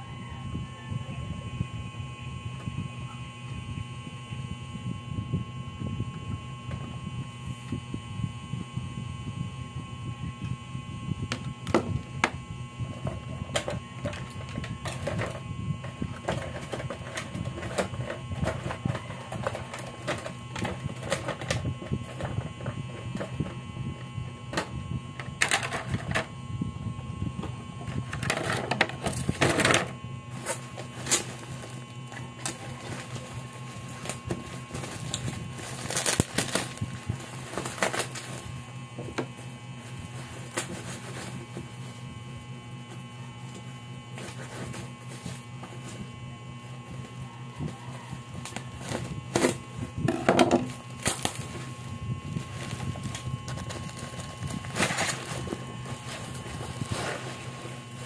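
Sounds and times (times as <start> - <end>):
plastic packaging crinkling: 30.3 - 42.0, 50.6 - 58.0.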